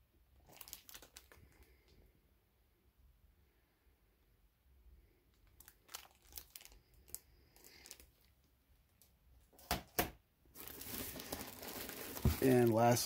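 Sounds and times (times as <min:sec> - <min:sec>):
plastic bag crinkling: 0:00.4 - 0:01.9, 0:05.4 - 0:08.4, 0:10.5 - 0:13.0.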